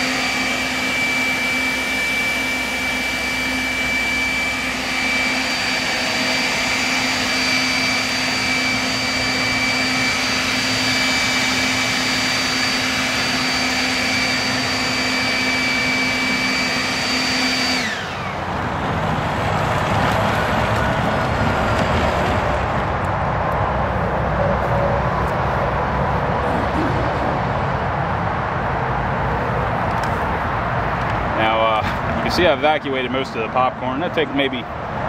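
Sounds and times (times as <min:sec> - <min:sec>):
leaf blower spinning down: 0:00.0 - 0:27.8
leaf blower whining: 0:00.0 - 0:35.0.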